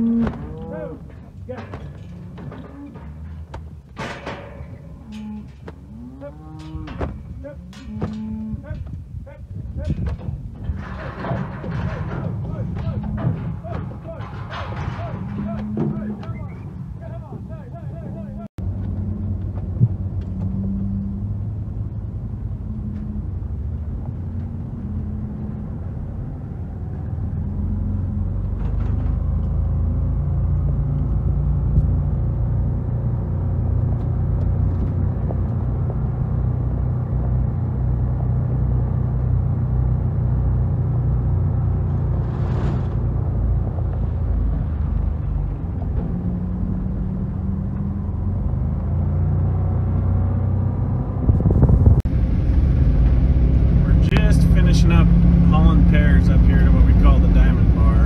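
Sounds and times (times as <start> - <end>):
road rumble: 0.0 - 58.0
vehicle engine running: 16.9 - 58.0.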